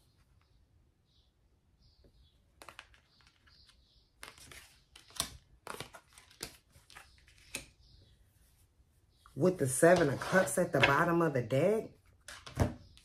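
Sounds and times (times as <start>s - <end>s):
cards being shuffled: 2.6s - 7.7s.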